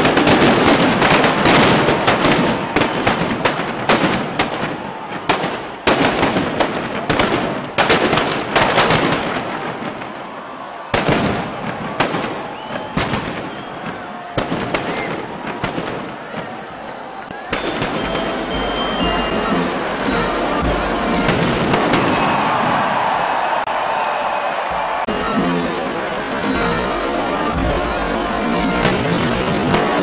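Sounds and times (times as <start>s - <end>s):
firecrackers exploding: 0.0s - 25.1s, 26.3s - 30.0s.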